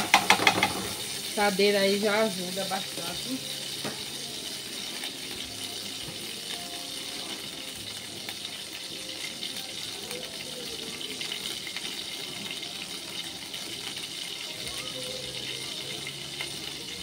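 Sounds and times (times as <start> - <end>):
butter sizzling in a pan: 0.0 - 17.0.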